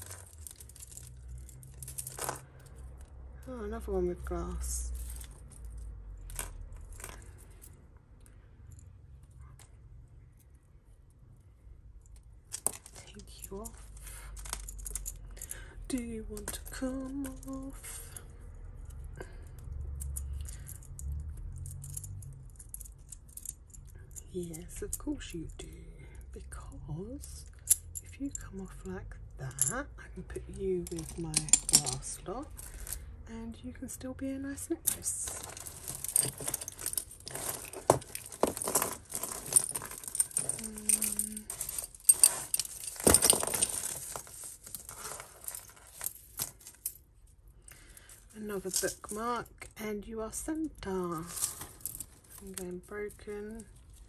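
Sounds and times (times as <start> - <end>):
jewellery chain and glass rattling: 0.0 - 7.9, 12.0 - 26.3, 27.1 - 33.2, 34.5 - 49.5, 50.5 - 54.0.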